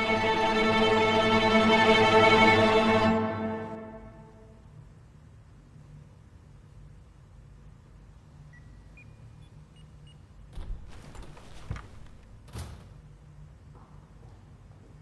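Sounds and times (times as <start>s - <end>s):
low steady hum: 0.0s - 15.0s
jacket and leather chair creaking: 10.6s - 12.4s.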